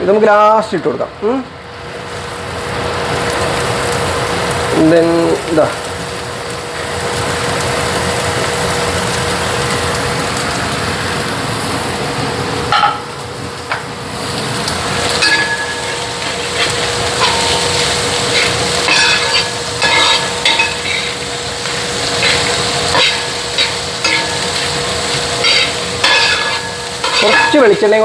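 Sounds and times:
steady hum: 0.8 - 28.0
onions sizzling in a pan: 1.2 - 28.0
spatula scraping a pan: 15.2 - 27.7.

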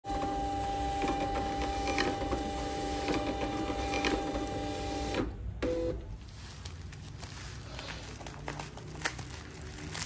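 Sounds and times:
label printer paper-feed whine: 0.0 - 6.2.

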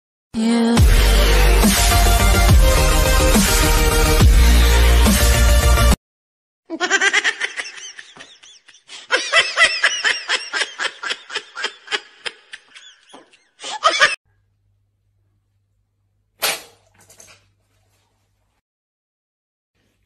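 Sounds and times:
electronic music: 0.8 - 6.0.

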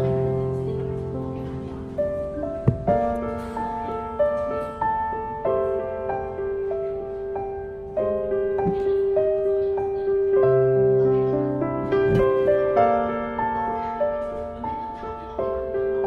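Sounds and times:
slow instrumental music: 0.0 - 6.4.

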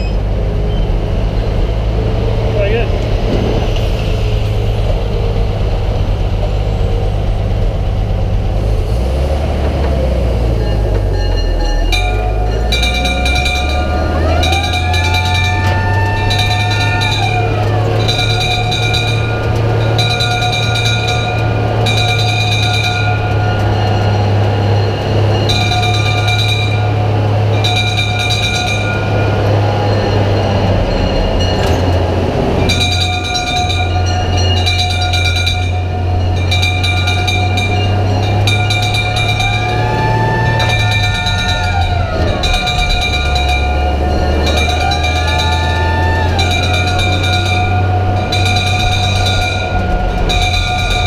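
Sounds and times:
fire engine engine droning: 0.0 - 51.0
hand-rung brass bell: 10.5 - 51.0.

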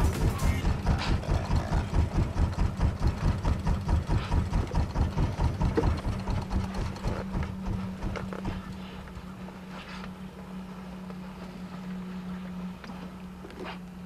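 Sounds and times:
boat engine chugging: 0.0 - 11.1.

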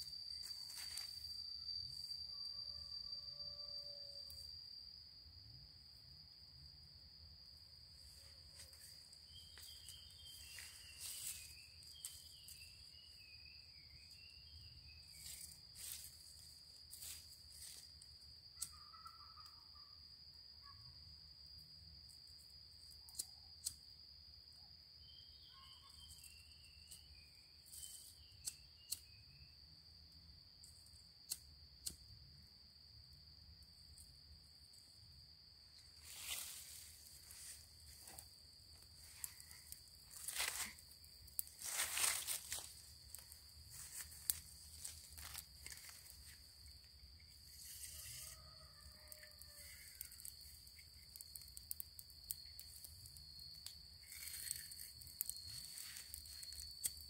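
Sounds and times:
dry leaves and twigs crackling: 0.0 - 1.4, 8.0 - 19.0, 35.7 - 57.0
high insect trilling: 0.0 - 6.4, 7.2 - 20.7, 33.4 - 57.0.

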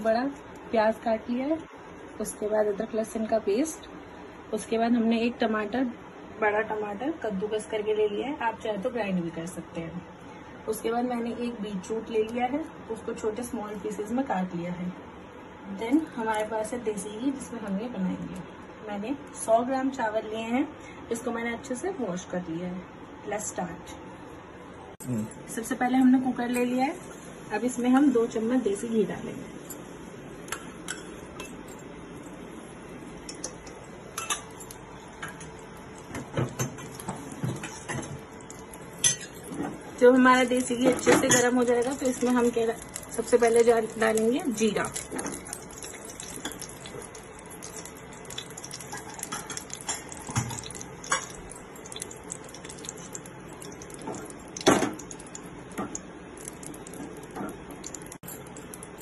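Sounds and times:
hot fat hissing and crackling: 32.5 - 59.0
steel spoon clinking against bowl: 39.0 - 39.5.

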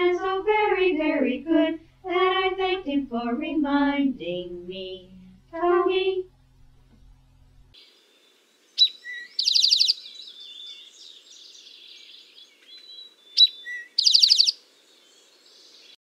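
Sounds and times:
bird singing with buzzy trill: 7.8 - 16.0
faint bird chirps: 7.8 - 16.0.

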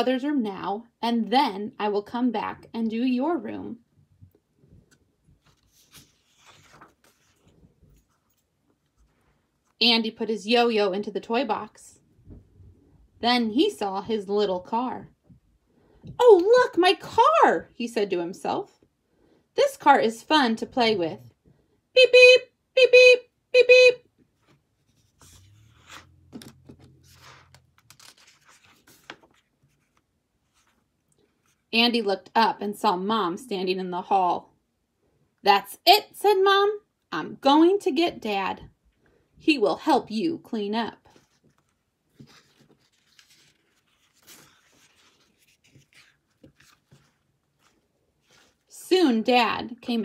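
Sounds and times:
paper page rustling: 4.8 - 9.8, 24.4 - 31.7, 41.1 - 48.8.

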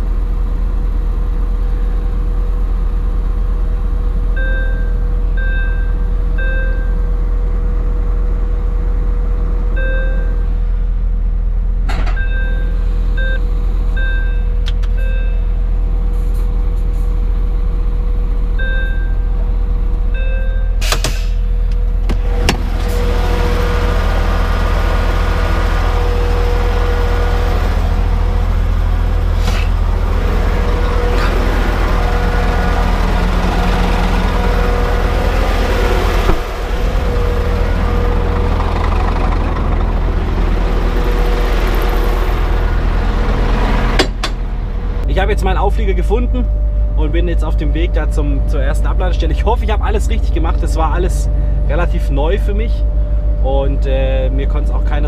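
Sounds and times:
diesel truck engine running: 0.0 - 55.0.

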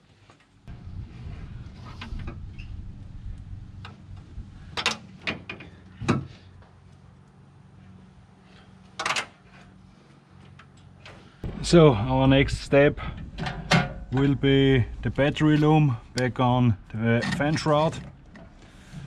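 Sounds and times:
low rumble: 0.7 - 4.8, 11.4 - 17.2
parts clattering: 3.8 - 6.6, 7.9 - 11.6, 13.0 - 16.3.

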